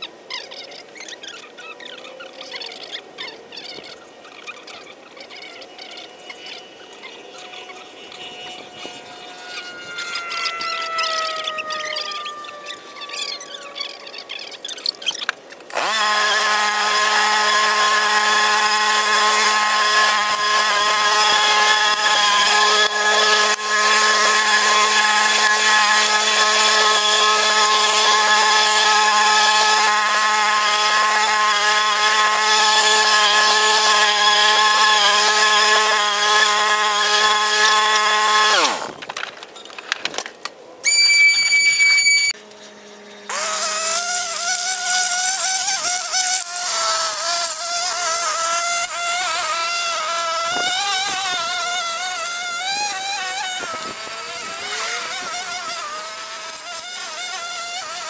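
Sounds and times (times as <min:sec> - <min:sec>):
loud high-pitched tone: 0:05.8 - 0:14.5.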